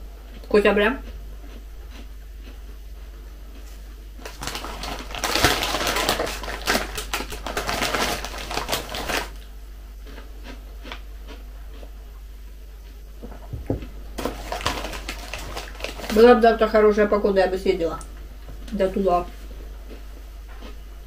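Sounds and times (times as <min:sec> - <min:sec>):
plastic packaging crinkling: 0:04.2 - 0:09.4, 0:14.2 - 0:16.5.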